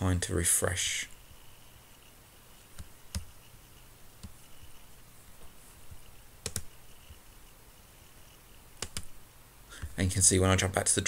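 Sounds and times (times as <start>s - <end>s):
computer mouse clicking: 2.0s - 3.5s, 4.2s - 4.8s, 5.9s - 7.3s, 8.8s - 9.2s.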